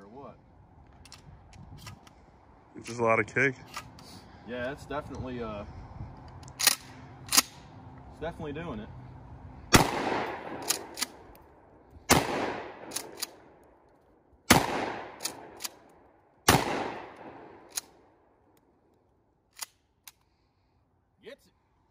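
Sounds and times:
gun handling clicks: 0:00.8 - 0:02.2, 0:03.6 - 0:04.1, 0:06.2 - 0:08.0, 0:10.5 - 0:11.5, 0:12.8 - 0:14.1, 0:15.2 - 0:16.0, 0:17.1 - 0:20.3
shotgun blasts with echo: 0:09.7 - 0:11.2, 0:12.1 - 0:13.4, 0:14.5 - 0:15.6, 0:16.5 - 0:17.7.

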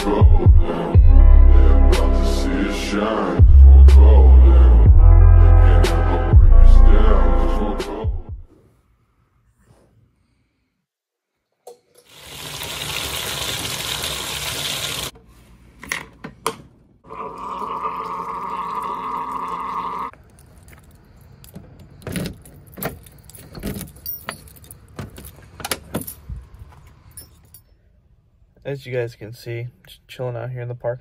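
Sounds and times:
keys jangling: 0:20.3 - 0:27.7
truck door unlocking and opening: 0:21.5 - 0:26.3.

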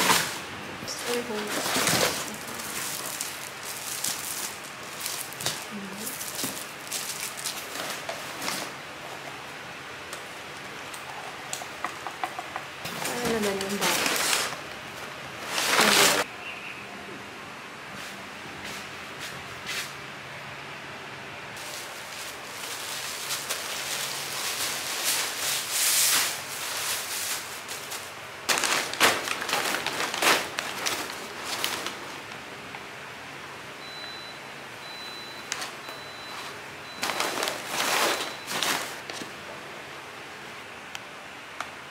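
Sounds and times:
plastic packaging crinkling: 0:00.0 - 0:08.8, 0:12.9 - 0:16.3, 0:21.6 - 0:32.5, 0:35.5 - 0:39.4.

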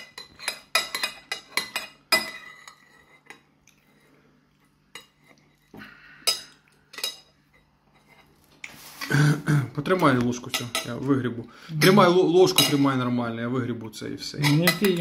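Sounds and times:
metal spoon scraping ceramic bowl: 0:00.0 - 0:03.4.

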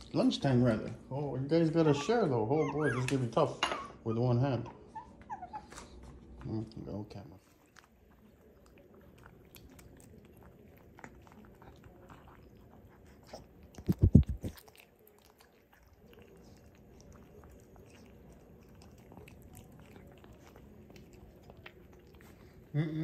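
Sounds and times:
puppies chewing dry kibble: 0:06.0 - 0:22.8.

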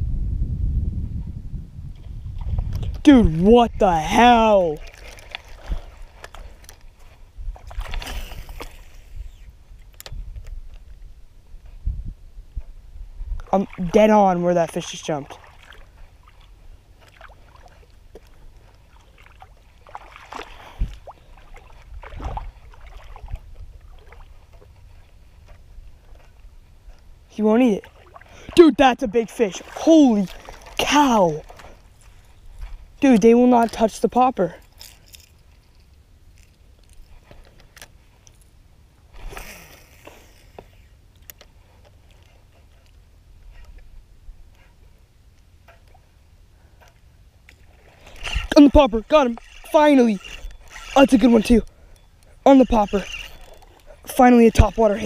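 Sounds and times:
wind rumbling on microphone: 0:00.0 - 0:14.3, 0:19.6 - 0:34.7, 0:47.7 - 0:55.0
fishing reel clicking: 0:34.6 - 0:37.9, 0:48.0 - 0:55.0.

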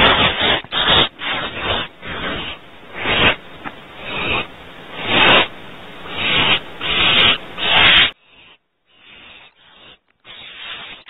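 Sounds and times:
owl nestlings hissing screeches: 0:00.0 - 0:08.2.

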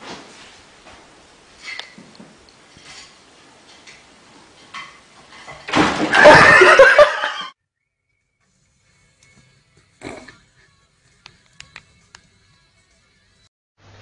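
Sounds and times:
people laughing loudly: 0:06.1 - 0:07.5.

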